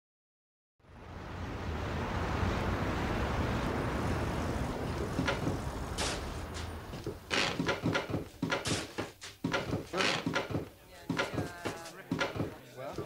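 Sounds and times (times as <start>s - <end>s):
street traffic rumble: 0.8s - 12.6s
sharp clicks and knocks: 7.0s - 12.6s.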